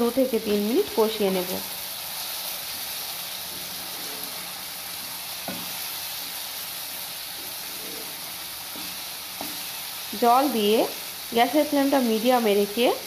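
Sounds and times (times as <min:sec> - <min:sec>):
masala sizzling in oil: 0:00.0 - 0:13.0
wooden spatula stirring: 0:01.9 - 0:10.1.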